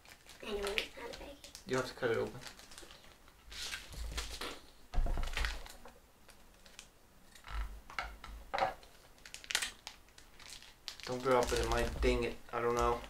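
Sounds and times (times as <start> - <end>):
plastic packaging crinkling: 0.0 - 4.6, 8.8 - 13.0.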